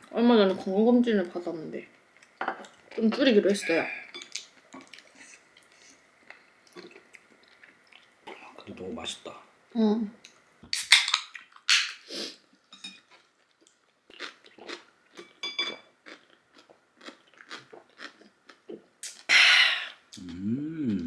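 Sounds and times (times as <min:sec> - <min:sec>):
chewing and swallowing: 0:04.2 - 0:08.5, 0:13.1 - 0:15.4, 0:16.0 - 0:19.3
breathy ahh: 0:19.3 - 0:21.0.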